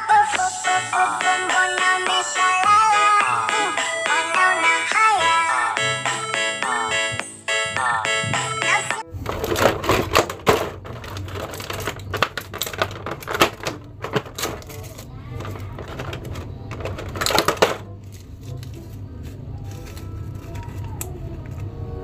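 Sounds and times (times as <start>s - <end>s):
plastic blister tray crackling: 9.1s - 21.7s.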